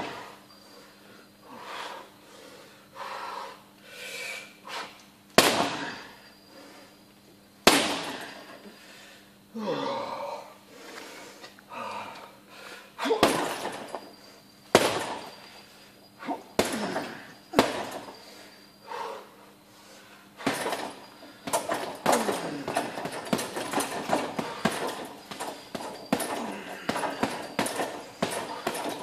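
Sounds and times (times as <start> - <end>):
boxing gloves hitting punching bag: 5.4 - 6.0, 7.7 - 8.5, 13.1 - 14.0, 14.7 - 15.4, 16.4 - 18.2, 20.4 - 29.0.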